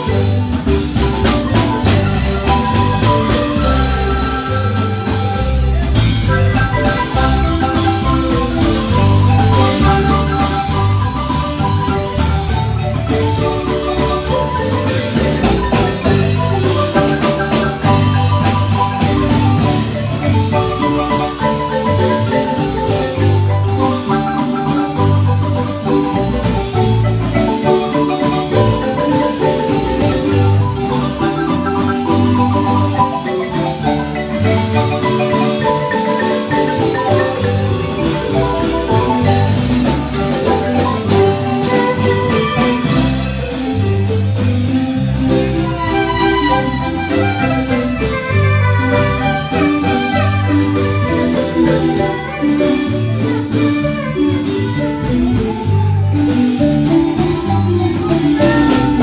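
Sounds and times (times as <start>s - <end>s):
wooden marimba playing: 0.0s - 59.0s.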